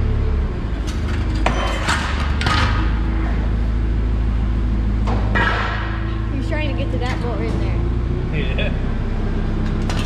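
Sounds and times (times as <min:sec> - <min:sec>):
low engine hum: 0:00.0 - 0:10.0
metal clanks and knocks: 0:00.8 - 0:03.1, 0:05.0 - 0:06.1.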